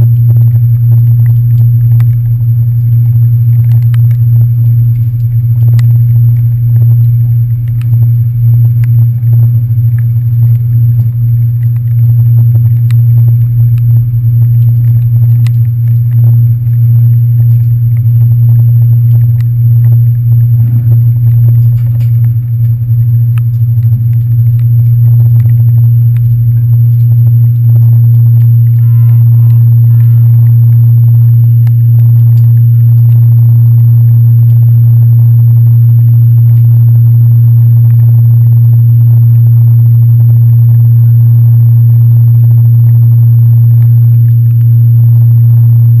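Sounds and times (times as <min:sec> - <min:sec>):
light ticks: 0:01.1 - 0:13.9, 0:14.5 - 0:18.3, 0:19.0 - 0:30.8
ferry diesel engines droning: 0:19.5 - 0:33.6.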